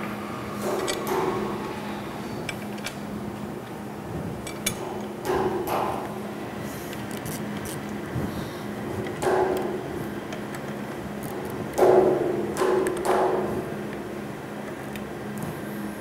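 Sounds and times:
low shop hum: 0.0s - 16.0s.

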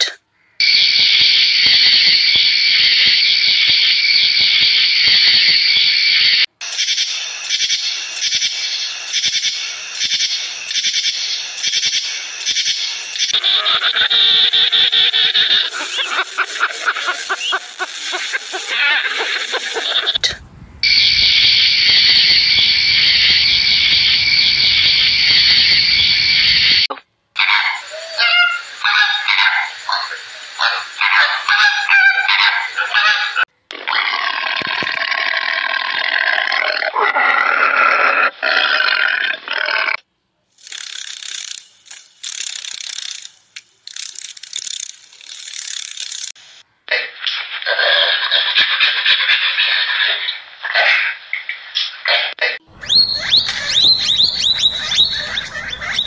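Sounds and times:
long wavering animal call: 20.8s - 26.8s, 27.5s - 33.4s, 52.7s - 56.0s
dry rattling buzzes: 40.6s - 46.4s
penguins calling: 52.8s - 56.0s.

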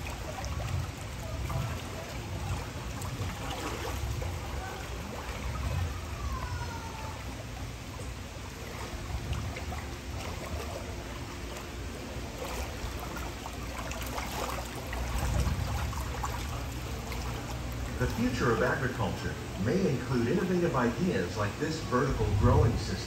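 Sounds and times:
water trickling around boat: 0.0s - 23.0s
low rumble: 12.2s - 23.0s.

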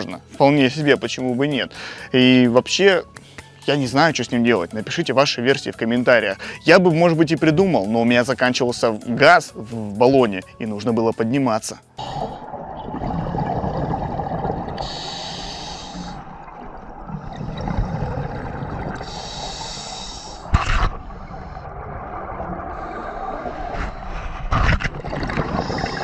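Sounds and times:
exhaled bubbles rushing: 12.0s - 26.0s
regulator inhalation hiss: 14.8s - 16.3s, 19.0s - 21.4s.

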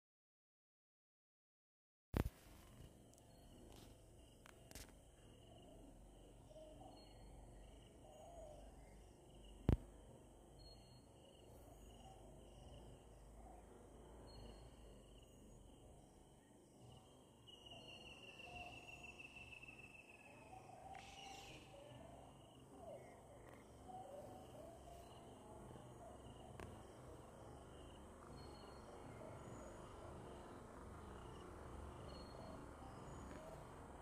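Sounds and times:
insects trilling: 10.6s - 34.0s.

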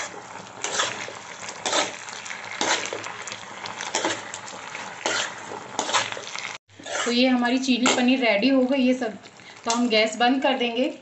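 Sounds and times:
spoon scraping in a pan: 0.0s - 8.2s
gravy sizzling: 0.0s - 10.8s.

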